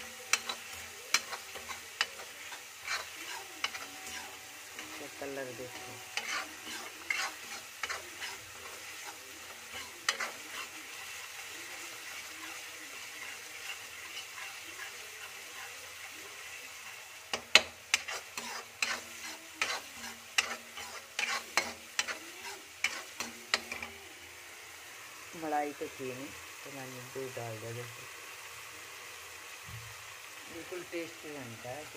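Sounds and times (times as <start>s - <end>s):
metal spoon scraping iron pan: 0.0s - 11.1s, 12.1s - 15.8s, 17.3s - 24.0s
food sizzling: 0.0s - 31.9s.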